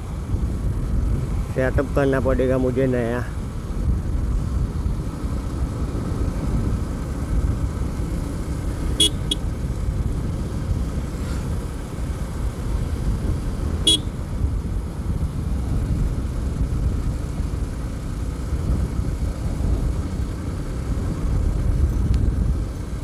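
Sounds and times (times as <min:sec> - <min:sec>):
wind and road noise: 0:00.0 - 0:23.0
short horn toots: 0:13.9 - 0:14.1.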